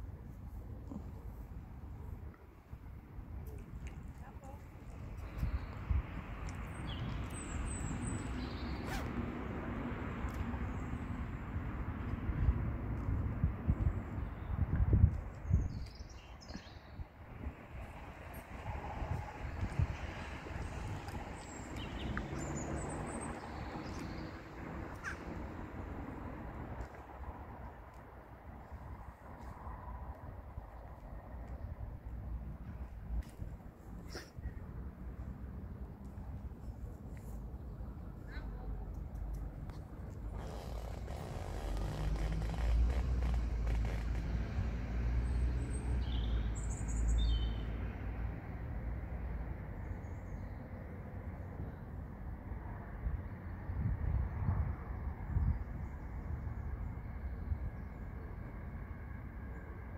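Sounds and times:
low outdoor rumble: 17.2s - 45.8s.

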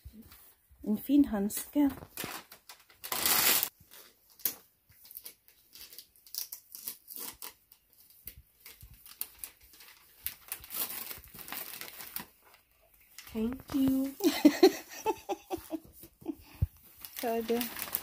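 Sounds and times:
wrapping paper tearing and crinkling: 1.9s - 14.7s, 16.8s - 18.0s.

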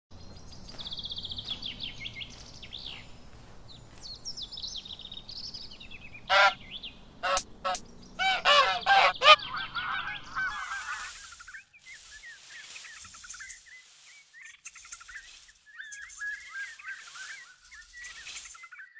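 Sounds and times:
high twittering bird chirps: 0.3s - 18.9s
lower bird calls: 4.2s - 18.9s.

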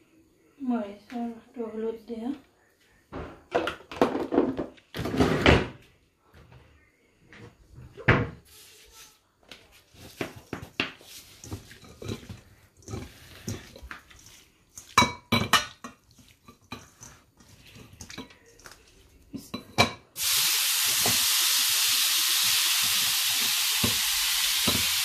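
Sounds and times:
hands mixing prawns: 9.9s - 19.4s.

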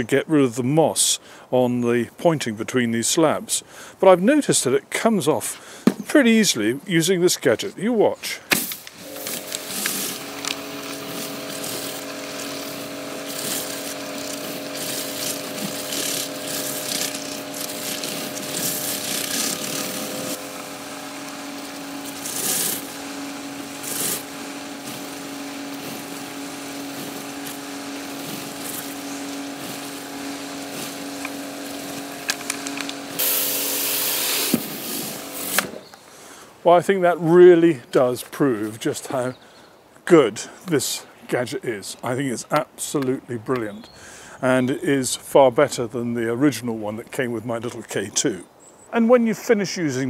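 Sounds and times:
pressure washer pump humming: 8.4s - 36.4s
water spray hissing: 8.5s - 35.8s.

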